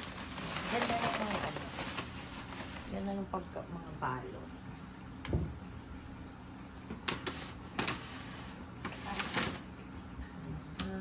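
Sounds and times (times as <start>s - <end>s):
paper rustling: 0.0s - 3.1s, 7.1s - 9.7s.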